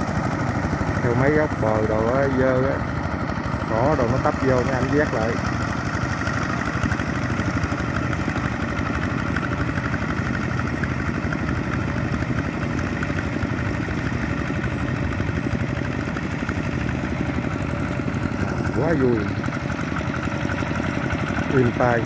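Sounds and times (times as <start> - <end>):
diesel engine running steadily: 0.0 - 22.0.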